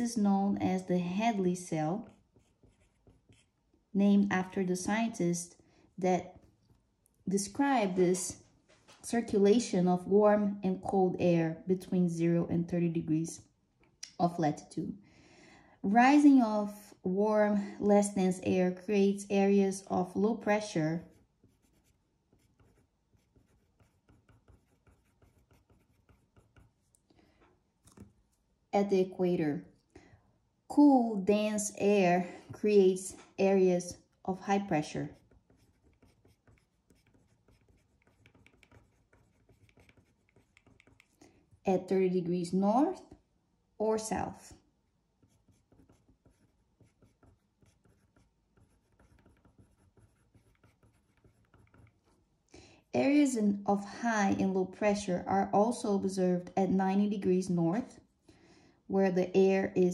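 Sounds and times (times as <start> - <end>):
pen scratching on paper: 1.3 - 3.6, 19.7 - 27.0, 34.6 - 41.6, 45.2 - 52.1.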